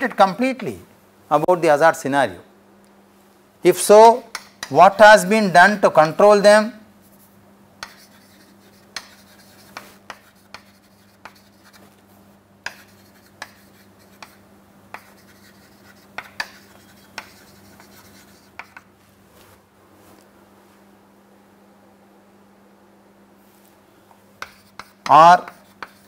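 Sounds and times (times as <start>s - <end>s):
chalk tapping on board: 4.3s - 4.8s, 7.8s - 11.9s, 12.6s - 18.9s, 24.4s - 26.0s
chalk scratching on chalkboard: 7.0s - 12.0s, 12.7s - 18.9s, 24.4s - 26.0s.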